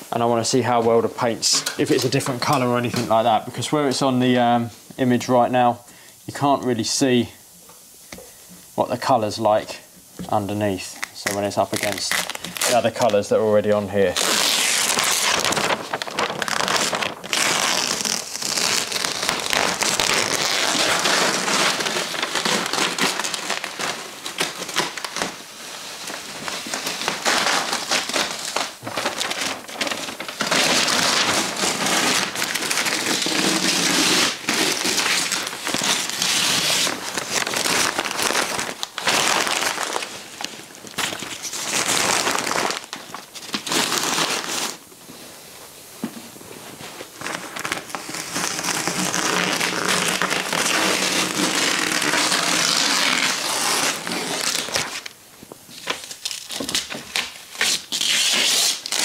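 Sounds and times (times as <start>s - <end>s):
paper peeling and crumpling: 10.6s - 44.8s, 47.1s - 59.0s.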